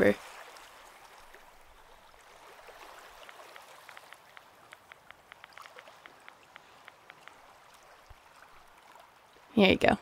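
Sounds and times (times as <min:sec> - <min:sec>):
phone keypad taps: 0:03.2 - 0:07.4.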